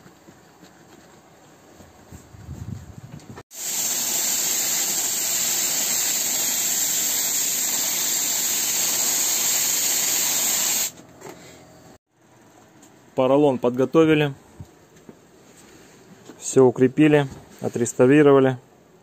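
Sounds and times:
spray gun hissing: 3.5 - 11.0.

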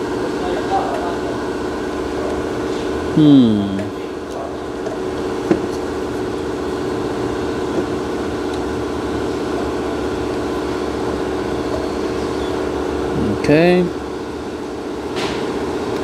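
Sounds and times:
machine droning hum: 0.0 - 16.0.

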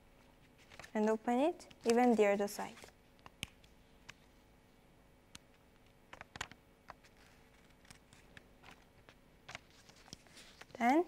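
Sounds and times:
low steady hum: 0.0 - 11.0
paper being folded and creased: 0.3 - 1.0, 1.8 - 4.3, 6.1 - 11.0.

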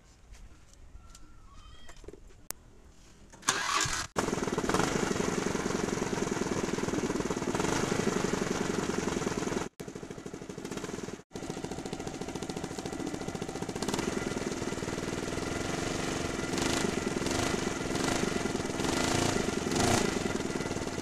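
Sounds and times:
scooter engine exhaust beat: 4.3 - 21.0.

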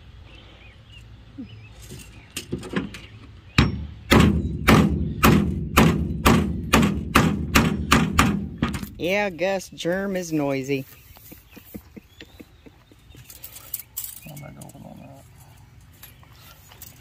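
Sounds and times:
hammer striking metal punch: 3.6 - 8.8.

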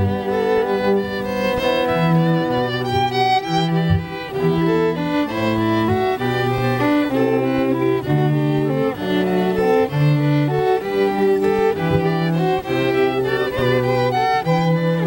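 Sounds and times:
cello bass line: 0.0 - 15.0
violin: 0.0 - 15.0.

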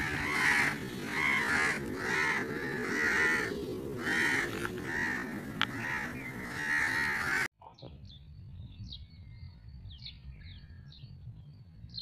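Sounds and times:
bird calling: 0.0 - 7.5.

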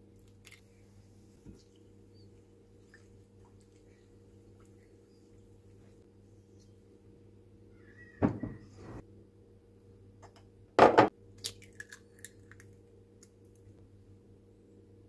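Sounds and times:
faint steady hum: 0.0 - 15.0
knock and clatter in bowl: 10.8 - 11.1
eggshell cracking apart: 11.4 - 13.4.

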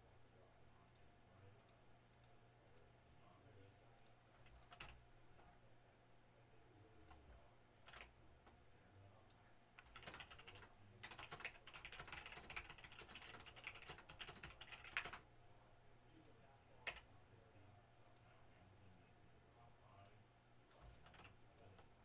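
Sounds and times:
typing on computer keyboard: 4.0 - 5.0, 7.8 - 8.1, 9.8 - 15.2, 16.8 - 17.0, 20.8 - 21.8.

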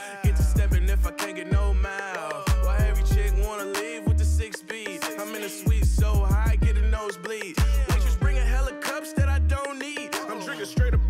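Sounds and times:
vocal line over beat: 0.0 - 11.0
sliding bass notes: 0.3 - 1.9, 2.5 - 4.5, 5.7 - 7.0, 7.6 - 9.6
hi-hat ticks: 2.2 - 3.9, 4.5 - 8.2.

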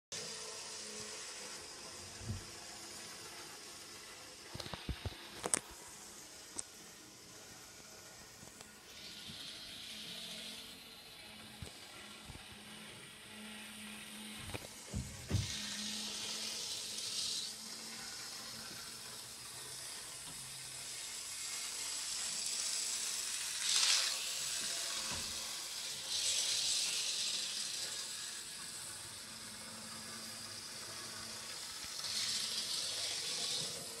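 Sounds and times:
model train hiss: 0.2 - 34.0
model train hum: 0.2 - 34.0.

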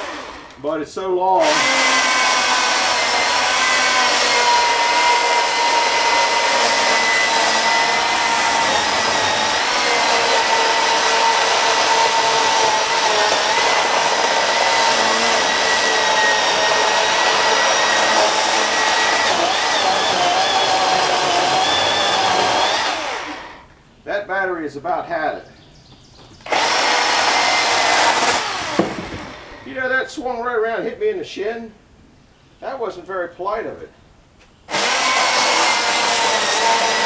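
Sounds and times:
electric chainsaw cutting log: 0.0 - 0.6, 1.4 - 23.7, 26.4 - 29.7, 34.7 - 37.0.

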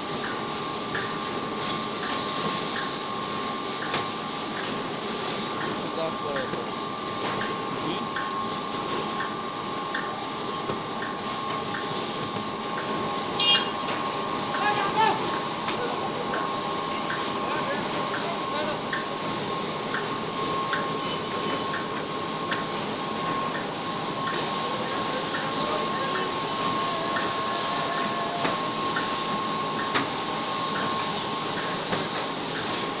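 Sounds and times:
brick-making machine running: 0.0 - 33.0
constant mechanical whine: 0.0 - 33.0.

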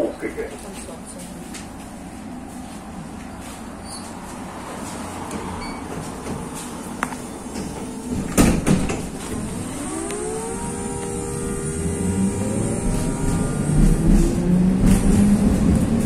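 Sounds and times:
bus engine idling: 0.0 - 14.6
bus doors shutting: 4.8 - 16.0.

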